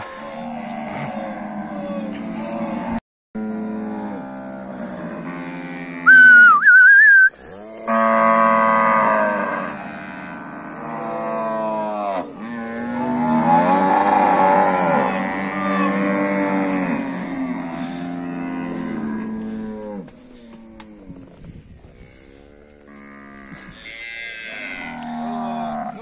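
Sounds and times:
cattle mooing: 0:00.0 - 0:21.2, 0:22.6 - 0:26.0
person whistling wavering: 0:06.1 - 0:07.3.

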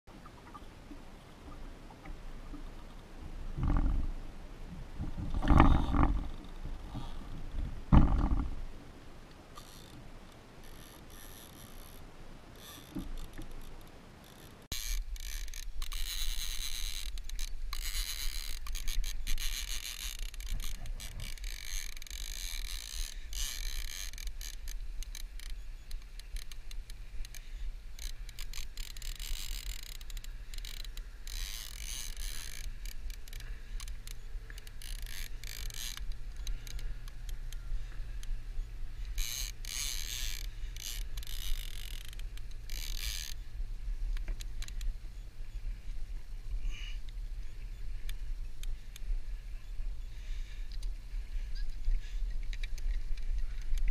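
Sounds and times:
fishing reel clicking: 0:09.6 - 0:12.0, 0:12.6 - 0:38.4, 0:39.0 - 0:43.4.

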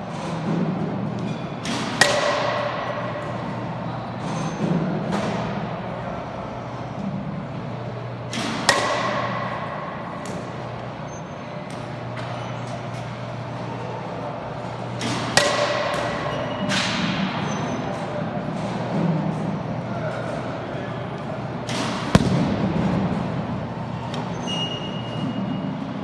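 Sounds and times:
steady low hum: 0:00.0 - 0:26.0
baseball bat cracking ball: 0:01.7 - 0:03.0, 0:08.5 - 0:10.5, 0:21.8 - 0:23.4.

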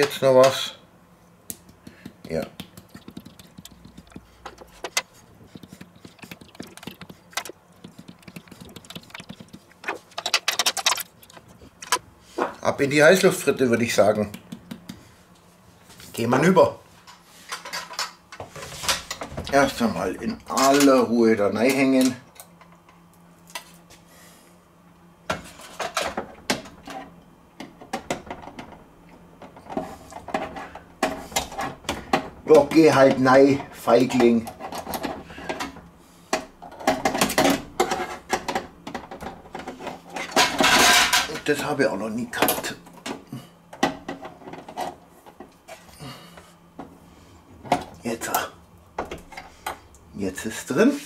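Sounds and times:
spice jar shaking ticks: 0:02.6 - 0:04.2.

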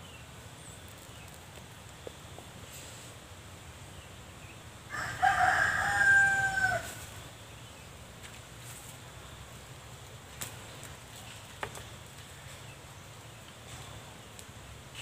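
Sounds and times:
rooster crowing: 0:04.9 - 0:07.1.

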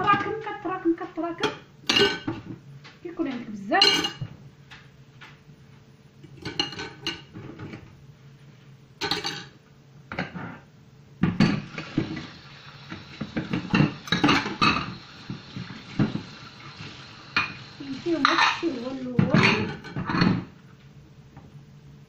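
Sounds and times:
dishes and cutlery clattering: 0:01.4 - 0:02.5, 0:03.8 - 0:04.3, 0:06.4 - 0:07.8, 0:09.0 - 0:09.5, 0:13.4 - 0:14.9, 0:18.2 - 0:20.5.

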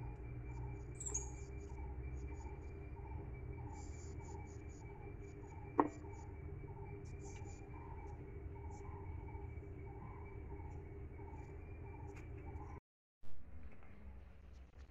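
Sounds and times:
insects chirping: 0:00.0 - 0:12.8
low steady hum: 0:00.0 - 0:14.9.

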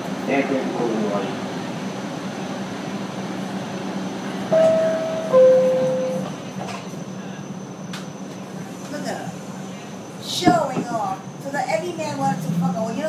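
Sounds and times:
train car running hum: 0:00.0 - 0:13.0
two-tone descending door chime: 0:04.5 - 0:06.3.

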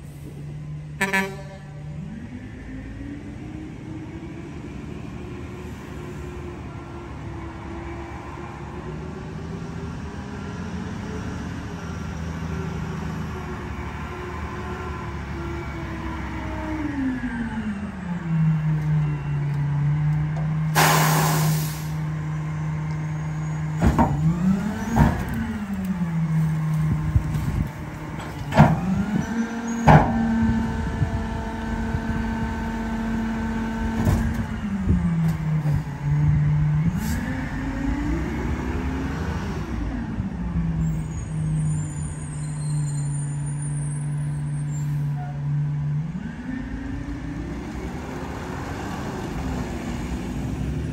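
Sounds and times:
diesel truck engine: 0:00.0 - 0:50.9
air brake hissing: 0:20.7 - 0:22.0.

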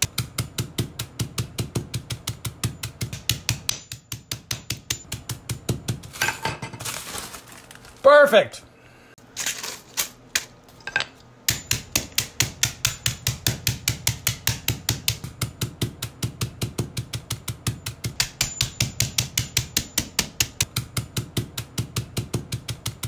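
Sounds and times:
hammer pounding beans in plastic bag: 0:00.0 - 0:08.1, 0:11.5 - 0:23.0.

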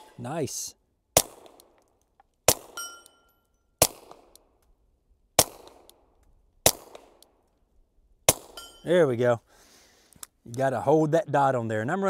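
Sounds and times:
suppressed pistol shots: 0:01.2 - 0:01.8, 0:02.4 - 0:03.1, 0:03.8 - 0:04.5, 0:05.4 - 0:06.0, 0:06.6 - 0:07.3, 0:08.2 - 0:08.7
steel target ringing: 0:02.8 - 0:03.4, 0:08.5 - 0:08.9.

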